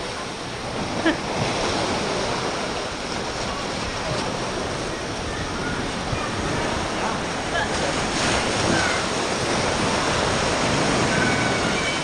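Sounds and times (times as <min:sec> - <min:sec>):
surf breaking on rocky shore: 0:00.0 - 0:12.0.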